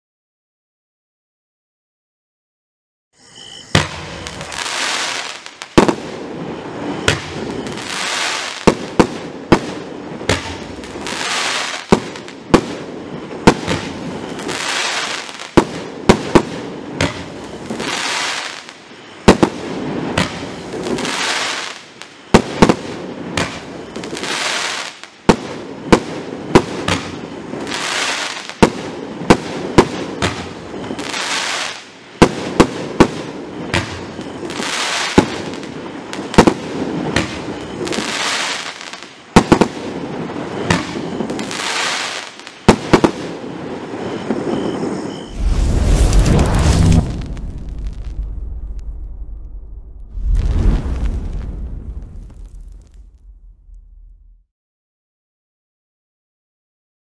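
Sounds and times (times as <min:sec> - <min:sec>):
fireworks rushing hiss: 0:03.2 - 0:12.7, 0:13.5 - 0:25.1, 0:25.9 - 0:43.3, 0:45.3 - 0:48.8, 0:50.1 - 0:53.0
fireworks shots: 0:03.7 - 0:54.4.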